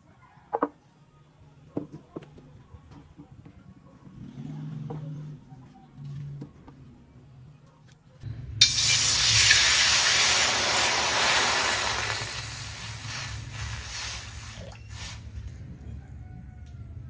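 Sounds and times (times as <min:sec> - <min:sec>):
water sizzling in a hot wok: 0:08.6 - 0:15.3.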